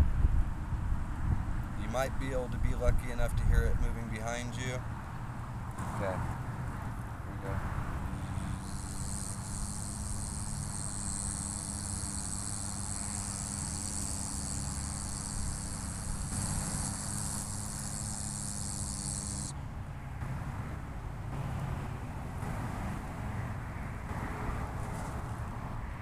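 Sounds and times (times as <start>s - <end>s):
high-pitched buzz: 8.1s - 19.6s.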